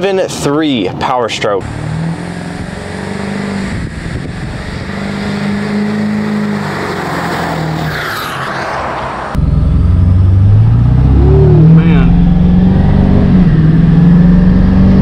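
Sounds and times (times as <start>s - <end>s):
diesel truck passing by: 1.6s - 15.0s
diesel engine from inside cab: 9.3s - 15.0s.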